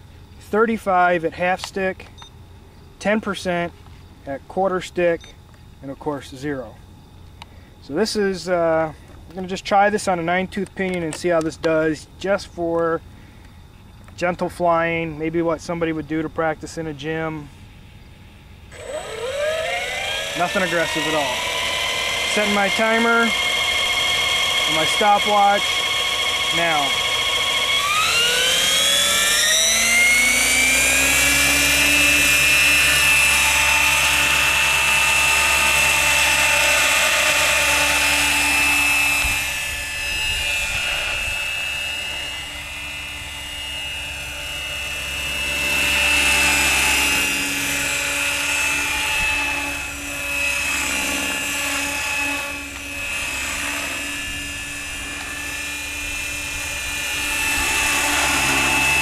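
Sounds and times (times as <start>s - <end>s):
rc helicopter motor whine: 17.0s - 59.0s
rotor noise: 18.6s - 59.0s.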